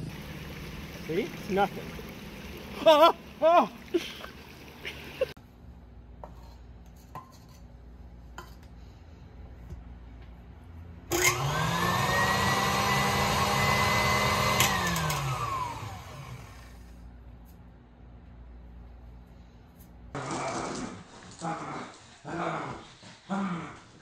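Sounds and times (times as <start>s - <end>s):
stand mixer motor whine: 11.1s - 16.9s.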